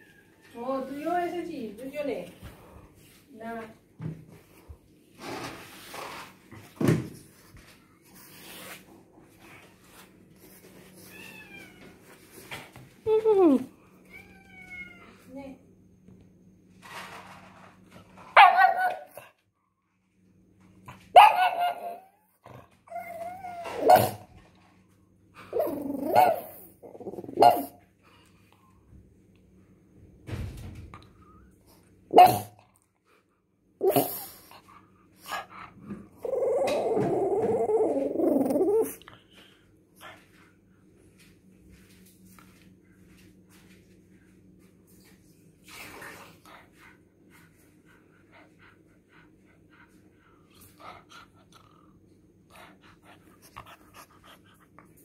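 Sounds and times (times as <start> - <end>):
dog barking: 18.4 - 19.2, 21.1 - 22.1, 27.4 - 27.8, 32.1 - 32.5
dog whining: 21.2 - 24.3, 25.5 - 27.7, 36.2 - 39.0
dog growling low: 35.9 - 39.1.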